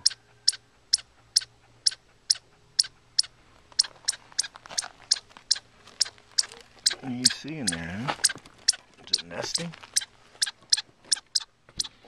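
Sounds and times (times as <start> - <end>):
chipmunk alarm chipping: 0.0 - 11.9.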